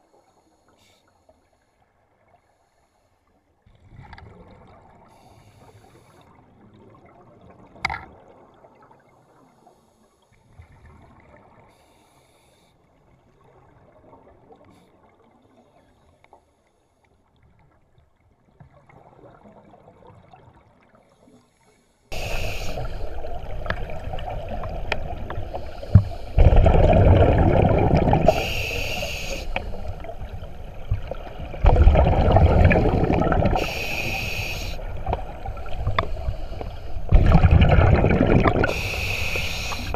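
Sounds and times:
underwater exhaled bubbles: 22.1 - 39.9.

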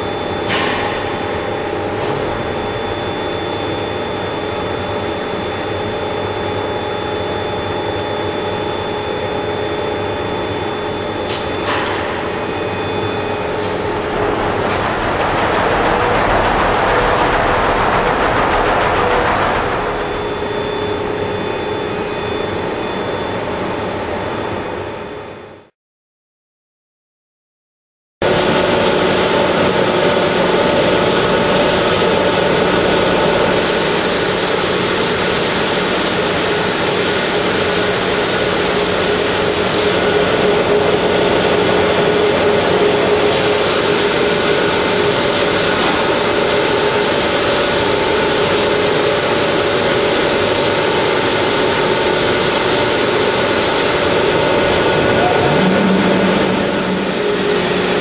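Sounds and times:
pumps and motors droning: 8.0 - 22.8, 39.8 - 58.0.

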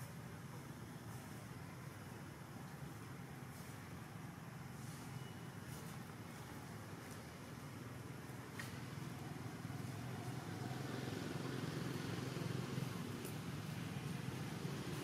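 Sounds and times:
low outdoor background rumble: 0.0 - 15.0.

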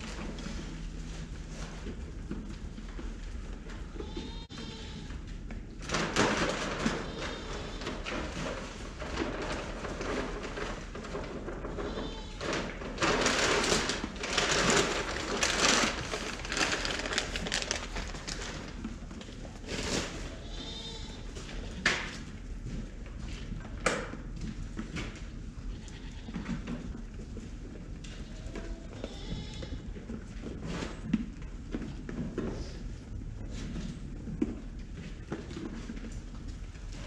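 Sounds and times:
loud rustling and scraping: 5.8 - 21.6.

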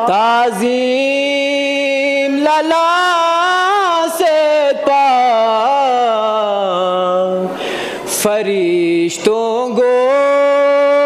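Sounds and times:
man chanting unaccompanied: 0.0 - 11.0
man taking a breath: 7.5 - 8.1.

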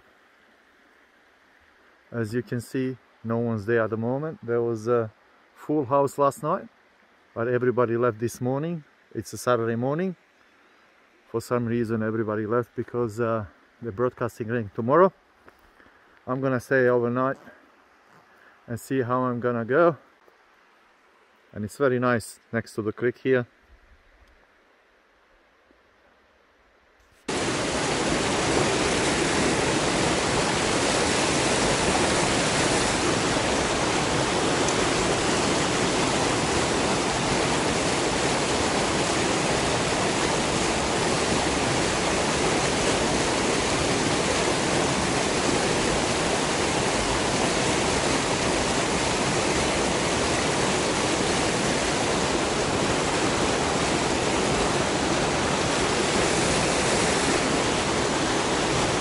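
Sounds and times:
river water rushing over boulders: 27.3 - 59.0.

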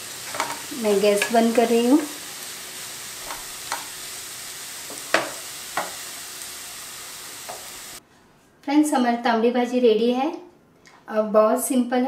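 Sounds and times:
soft sizzle from pan: 0.0 - 8.0
spatula knocking on pan: 4.9 - 6.0.

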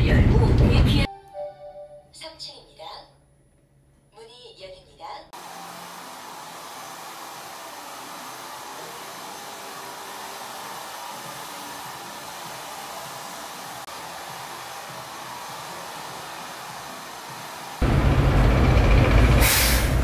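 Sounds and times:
hair dryer running: 5.4 - 17.9.

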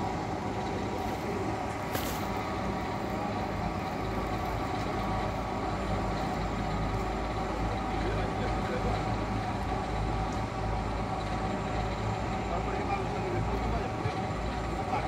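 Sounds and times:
travel lift engine and winch drone: 0.0 - 15.0
brief hiss: 1.9 - 2.4.

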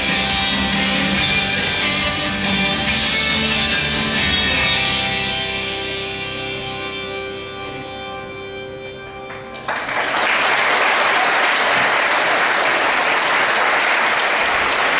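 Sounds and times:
final music chord ringing: 4.5 - 9.9
audience applause: 9.3 - 14.9.

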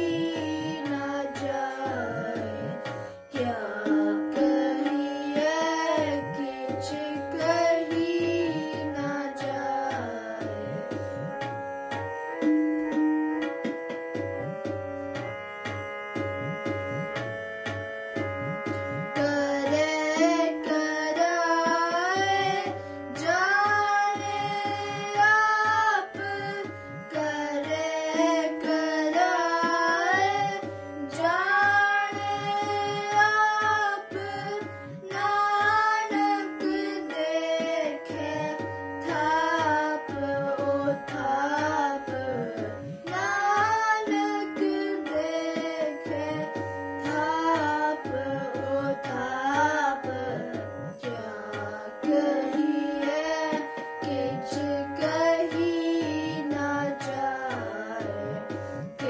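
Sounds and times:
harmonium drone: 0.0 - 59.0
drum beat: 16.2 - 17.3, 18.2 - 19.2.

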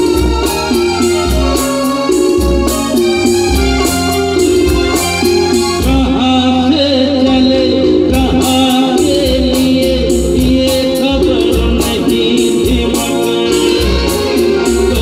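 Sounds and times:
steady percussion beat: 0.0 - 6.5, 7.2 - 15.0
electric guitars: 0.0 - 15.0
keyboards: 0.0 - 15.0
man singing into a microphone: 5.8 - 15.0.

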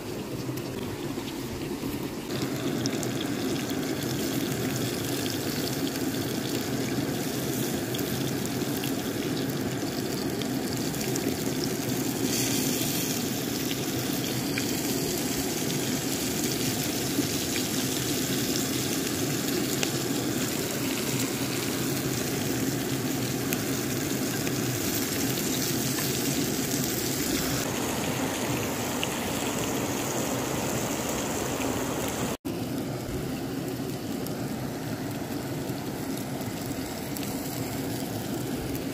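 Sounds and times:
creek water rushing: 27.3 - 32.4.

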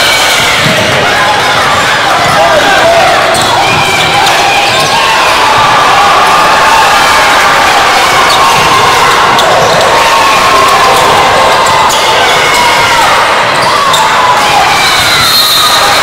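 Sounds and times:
crowd and player voices: 0.0 - 16.0.

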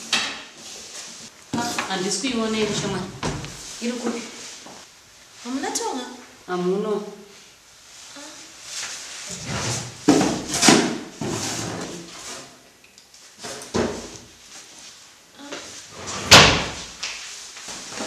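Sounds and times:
sharp knocks and thumps: 2.6 - 3.6.

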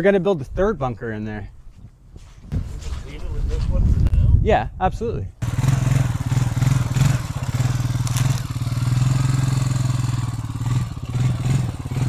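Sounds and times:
vehicle engine running at low revs: 5.4 - 12.0.

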